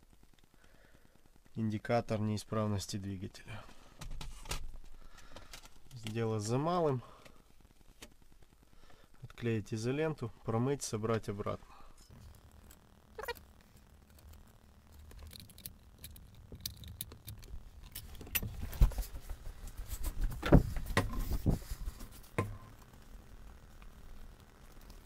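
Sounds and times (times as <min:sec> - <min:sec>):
plastic parts clicking and rattling: 0:04.0 - 0:06.5, 0:14.1 - 0:19.4.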